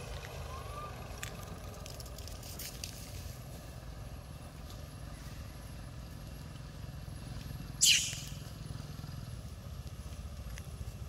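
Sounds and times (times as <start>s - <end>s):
baby monkey squealing: 7.8s - 8.5s.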